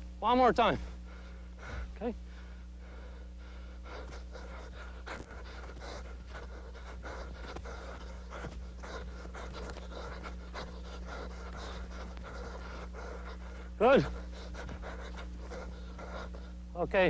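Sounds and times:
low hum: 0:00.0 - 0:17.0
man panting hard: 0:00.7 - 0:17.0.

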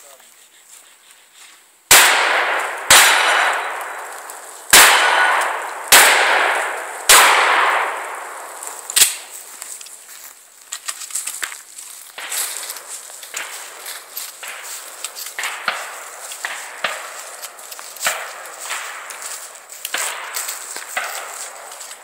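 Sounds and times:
pistol shot: 0:01.9 - 0:09.3
shotgun firing at steel targets: 0:01.9 - 0:09.3, 0:14.4 - 0:21.8
scuffing and rustling: 0:07.9 - 0:22.0.

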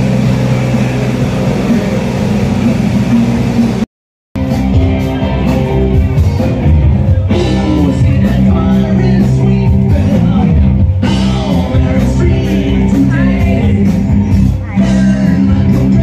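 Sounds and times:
rock music with singing: 0:00.0 - 0:03.8, 0:04.4 - 0:16.0.

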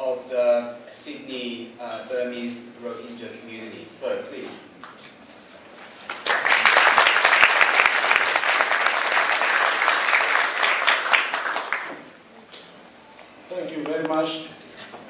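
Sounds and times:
audience applauding: 0:06.0 - 0:12.1.

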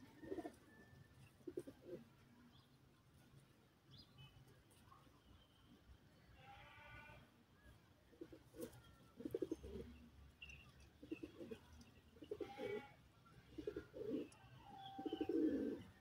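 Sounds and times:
pigeons cooing: 0:00.0 - 0:02.2, 0:08.2 - 0:10.1, 0:10.8 - 0:16.0.

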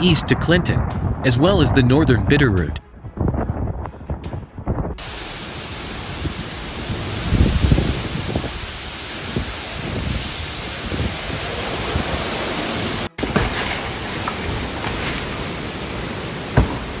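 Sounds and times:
strong wind: 0:00.0 - 0:17.0
heavy rain: 0:05.0 - 0:17.0.

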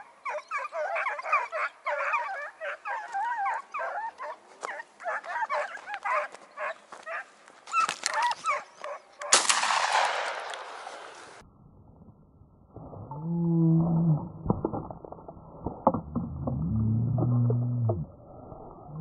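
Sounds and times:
hounds baying and yelping: 0:00.0 - 0:09.4
shotgun shot echoing: 0:09.3 - 0:11.4.

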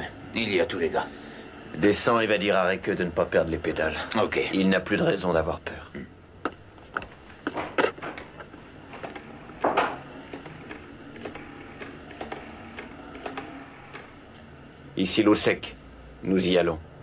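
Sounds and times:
telephone dialling clicks: 0:06.9 - 0:14.5.

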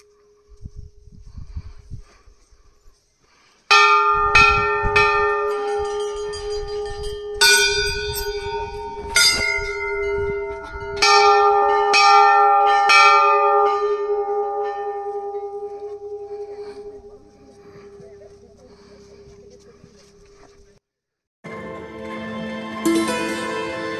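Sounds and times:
brass bells ringing: 0:03.7 - 0:20.2.

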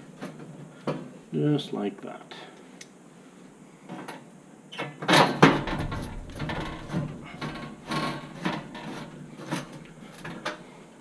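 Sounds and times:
sharp knocks on metal: 0:05.2 - 0:07.6
metal clattering: 0:05.2 - 0:10.5.

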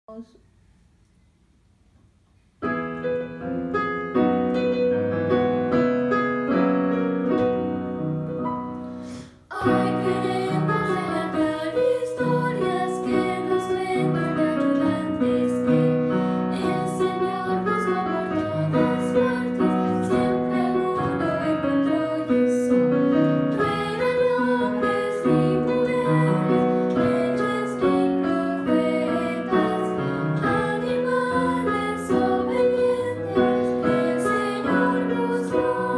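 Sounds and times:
keyboard accompaniment: 0:02.6 - 0:35.9
girls singing children's song: 0:09.5 - 0:35.9.

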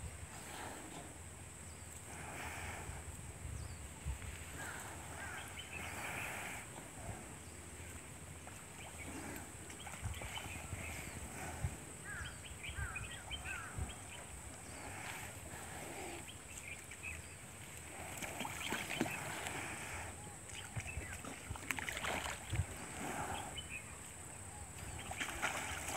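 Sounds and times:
small birds chirping: 0:03.5 - 0:22.0.

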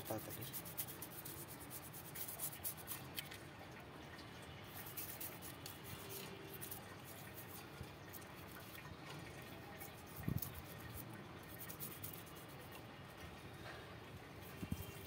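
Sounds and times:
toothbrush scrubbing shell: 0:00.0 - 0:03.3, 0:04.7 - 0:08.8, 0:09.8 - 0:12.8.

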